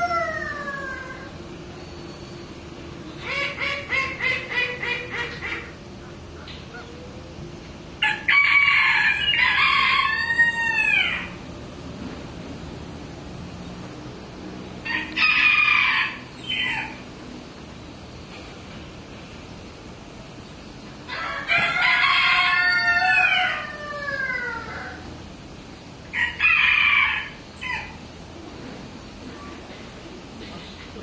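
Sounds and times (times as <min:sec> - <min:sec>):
rooster clucking and crowing: 0:00.0 - 0:01.4, 0:08.0 - 0:11.4, 0:14.8 - 0:17.2, 0:21.0 - 0:25.2, 0:26.1 - 0:28.1.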